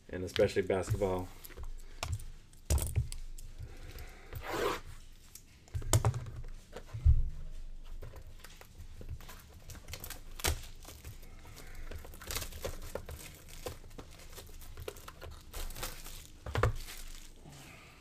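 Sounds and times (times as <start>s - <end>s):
foil wrapper crinkling: 8.4s - 17.5s.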